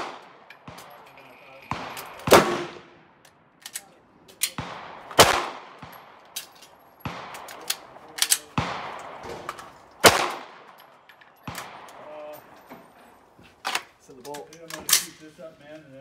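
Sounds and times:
pistol shots with echo: 0:00.0 - 0:03.4, 0:04.5 - 0:12.6
lighter sharp cracks: 0:00.0 - 0:12.6.

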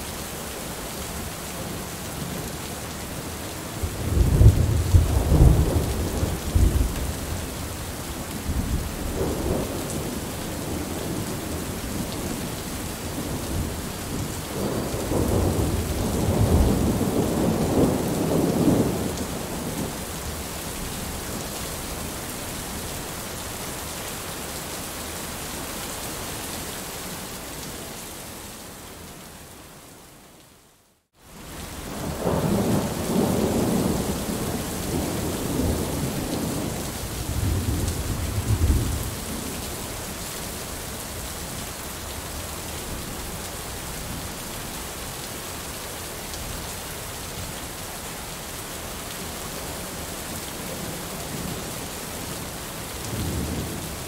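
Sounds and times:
heavy rain falling: 0:00.0 - 0:30.4, 0:31.1 - 0:54.0
rolling thunder: 0:04.0 - 0:07.4, 0:13.5 - 0:19.9, 0:32.0 - 0:39.5.

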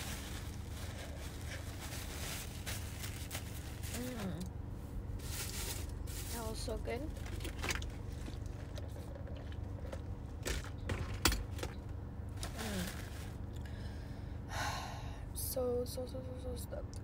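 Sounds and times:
steady low hum: 0:00.0 - 0:17.0
person humming: 0:03.9 - 0:04.5, 0:12.5 - 0:13.0.

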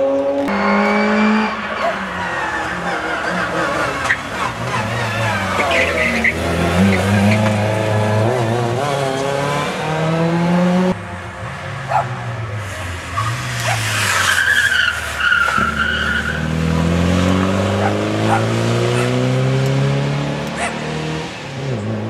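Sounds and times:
rally car engines revving: 0:00.0 - 0:22.0
tyre squeal: 0:00.5 - 0:07.6, 0:13.2 - 0:16.5.

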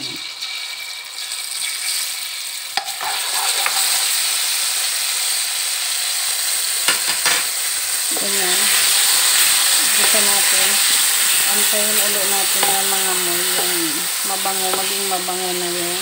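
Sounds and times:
garlic sizzling in hot oil: 0:00.0 - 0:16.0
wooden spatula scraping wok: 0:02.8 - 0:04.3, 0:08.1 - 0:16.0.

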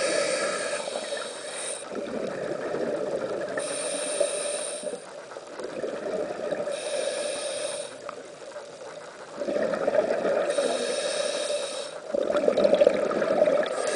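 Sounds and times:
regulator hissing inhalation: 0:00.0 - 0:01.9, 0:03.6 - 0:05.1, 0:06.7 - 0:08.0, 0:10.5 - 0:12.1
rush of exhaled bubbles: 0:09.4 - 0:10.6, 0:12.1 - 0:13.9.

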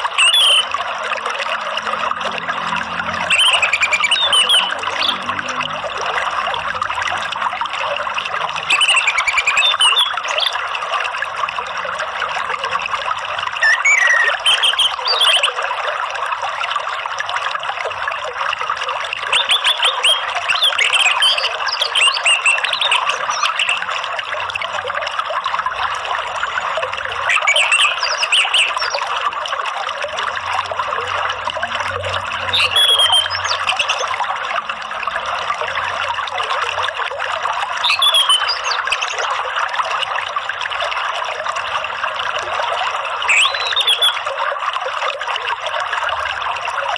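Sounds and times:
water trickling: 0:00.0 - 0:46.9
songbird chirping and whistling: 0:00.2 - 0:00.7, 0:03.3 - 0:05.2, 0:08.7 - 0:10.4, 0:13.6 - 0:15.5, 0:27.3 - 0:28.9, 0:32.6 - 0:33.9, 0:37.9 - 0:39.2, 0:43.3 - 0:44.2.

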